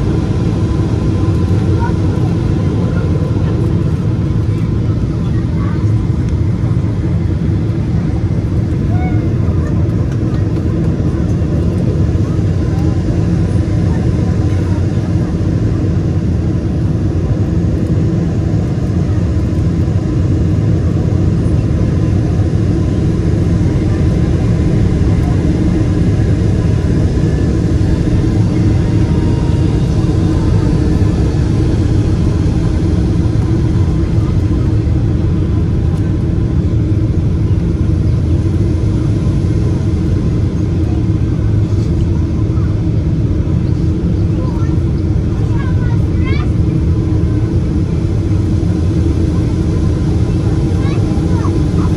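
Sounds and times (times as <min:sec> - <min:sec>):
airliner cabin rumble: 0:00.0 - 0:51.9.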